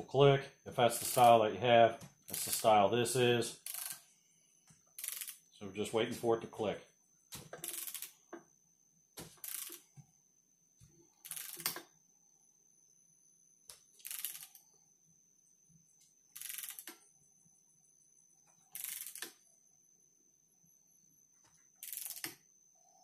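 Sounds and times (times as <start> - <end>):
torque wrench ratchet clicking: 1.0 - 1.3, 2.3 - 2.7, 3.6 - 4.0, 5.0 - 5.4, 7.6 - 8.1, 9.4 - 9.8, 11.3 - 11.8, 14.0 - 14.6, 16.4 - 16.9, 18.8 - 19.4, 21.8 - 22.4.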